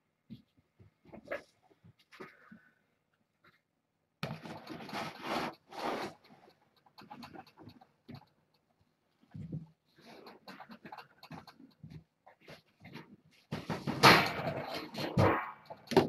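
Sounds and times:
kittens scuffing and tapping: 0:04.2 - 0:16.0
kittens scratchy rustling: 0:04.3 - 0:16.0.

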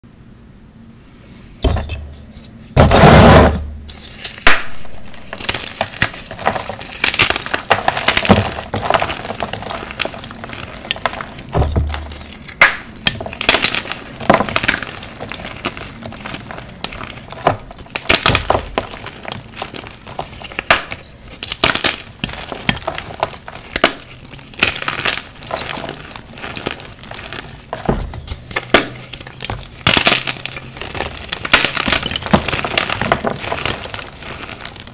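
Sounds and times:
chalk crunching and crumbling by hand: 0:02.1 - 0:34.9.

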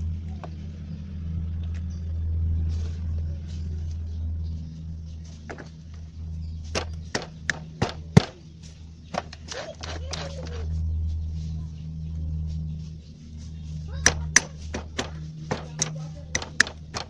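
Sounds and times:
steady low hum: 0:00.0 - 0:17.0
sharp metallic clicks and knocks: 0:06.7 - 0:08.4, 0:09.1 - 0:10.7, 0:14.0 - 0:17.0.

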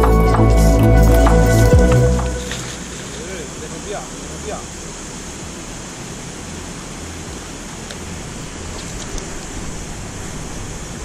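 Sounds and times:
fast-flowing river rushing: 0:00.0 - 0:11.0
faint clicks: 0:08.7 - 0:09.6.

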